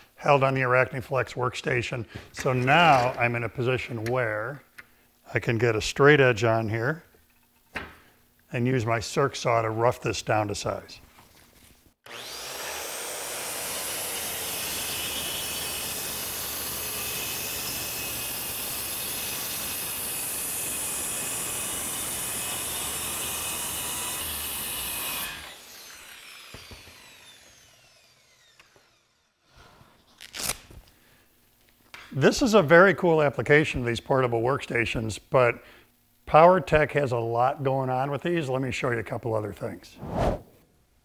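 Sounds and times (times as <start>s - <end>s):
saw spinning down: 12.0s - 29.4s
circular saw cutting: 12.0s - 29.5s.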